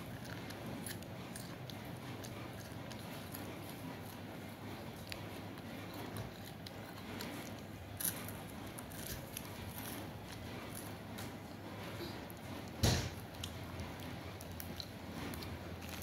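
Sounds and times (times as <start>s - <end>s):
child chewing a snack: 0.0s - 16.0s.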